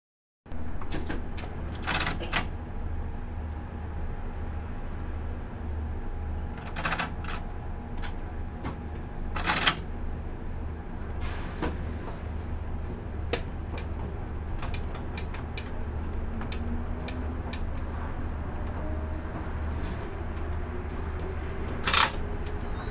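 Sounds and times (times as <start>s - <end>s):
crane machinery hum: 0.5s - 22.9s
sharp clicks and knocks: 13.3s - 18.0s.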